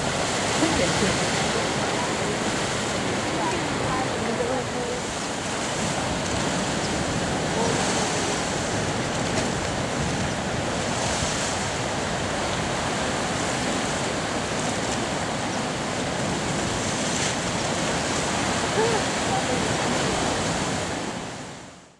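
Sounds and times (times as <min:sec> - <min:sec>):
ocean surf breaking on beach: 0:00.0 - 0:21.9.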